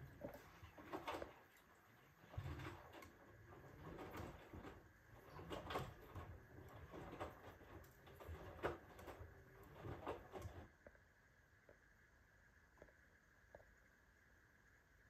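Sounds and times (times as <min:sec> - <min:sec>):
washing machine laundry sloshing: 0:00.0 - 0:10.7.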